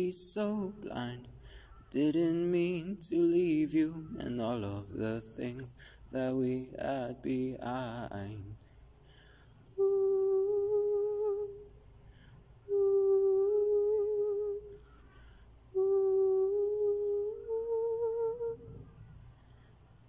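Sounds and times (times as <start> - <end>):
man humming a melody: 1.9 - 8.6, 9.8 - 11.7, 12.6 - 15.0, 15.7 - 18.9.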